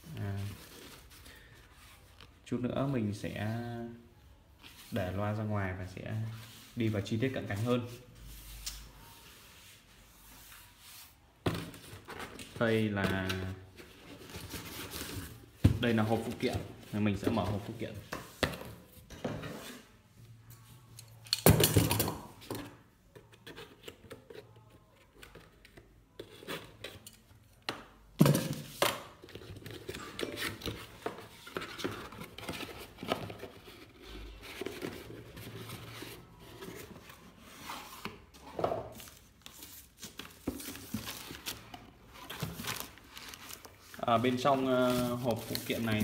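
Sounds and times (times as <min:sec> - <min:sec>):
cardboard rustling and scraping: 0:04.6 - 0:20.0, 0:28.3 - 0:46.0.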